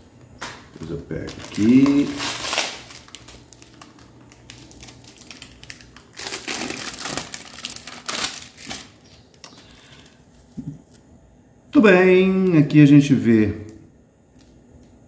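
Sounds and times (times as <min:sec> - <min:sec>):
plastic wrapping crinkling: 0:00.8 - 0:11.0.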